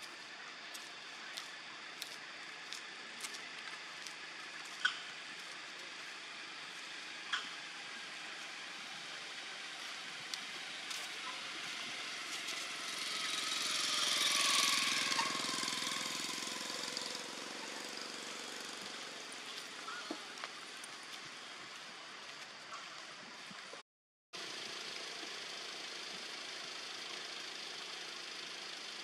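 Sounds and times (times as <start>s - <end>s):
outdoor hiss: 24.4s - 29.0s.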